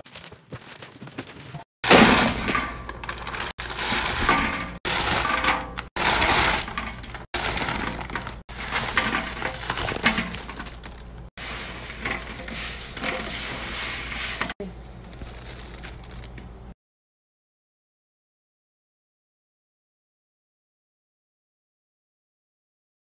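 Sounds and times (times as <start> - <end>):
candy pouring into a bin: 1.9 - 16.6.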